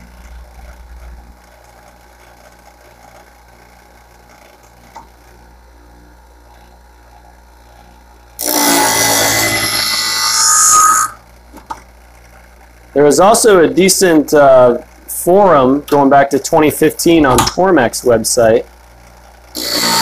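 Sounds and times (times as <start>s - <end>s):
sharpener motor humming: 7.6s - 12.4s, 18.9s - 20.0s
steel grinding on abrasive wheel: 8.4s - 11.2s, 19.5s - 20.0s.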